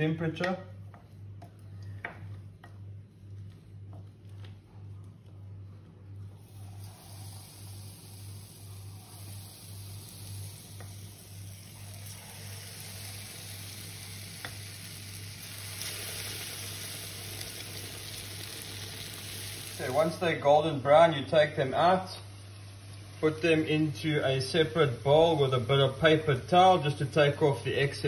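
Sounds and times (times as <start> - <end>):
battered food sizzling in oil: 6.4 - 20.2.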